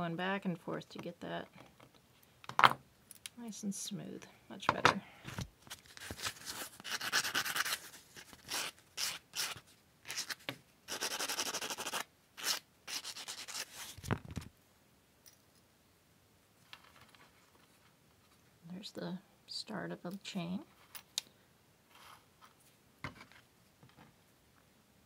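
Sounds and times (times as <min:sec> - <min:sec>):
sandpaper scraping metal: 0:06.4 - 0:13.9.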